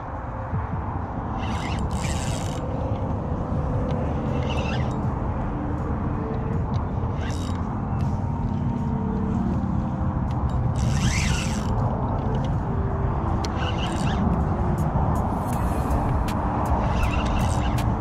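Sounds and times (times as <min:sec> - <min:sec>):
fishing reel winding: 0:01.4 - 0:03.1, 0:03.8 - 0:05.1, 0:07.1 - 0:07.7, 0:10.5 - 0:12.5, 0:13.4 - 0:14.3, 0:15.5 - 0:18.0.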